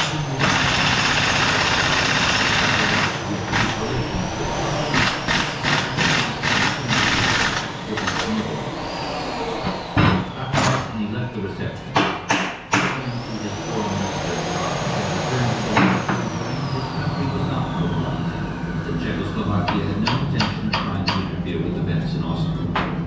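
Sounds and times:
air impact wrench hammering: 0.0s - 8.4s, 11.9s - 13.2s.

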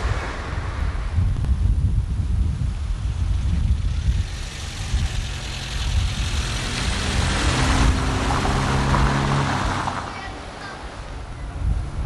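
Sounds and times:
wind rumble on microphone: 0.0s - 12.0s
car driving past: 3.9s - 10.2s.

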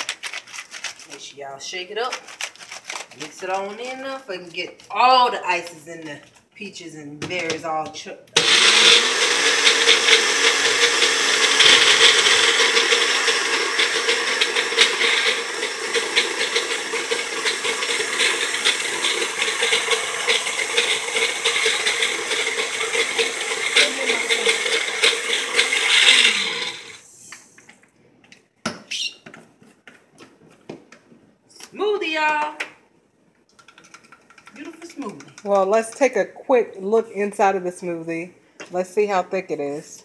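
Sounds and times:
blender crushing ice: 8.4s - 27.0s.

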